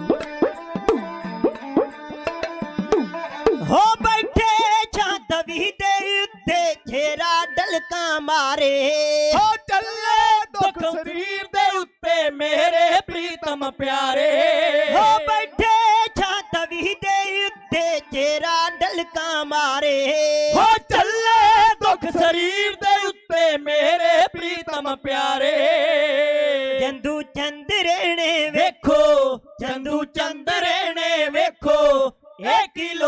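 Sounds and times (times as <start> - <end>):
hand drums: 0.0 - 4.7
bowed sarangi: 0.0 - 11.4, 14.2 - 23.0
men singing: 3.6 - 17.7, 23.5 - 33.0.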